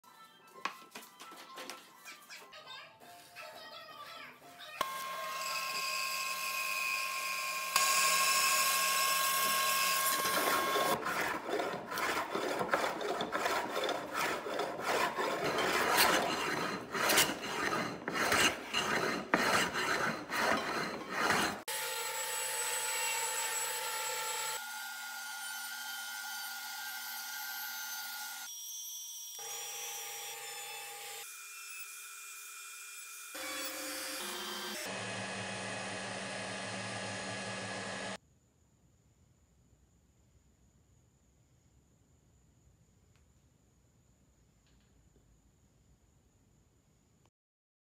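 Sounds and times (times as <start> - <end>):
hand plane rasping on wood: 10.4 - 21.7.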